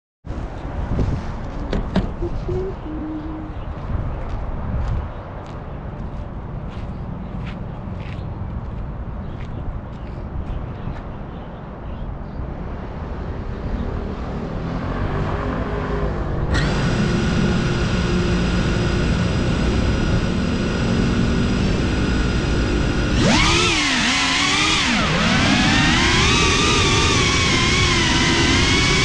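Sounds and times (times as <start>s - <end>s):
drone motors whining: 2.0s - 3.6s, 16.0s - 29.0s.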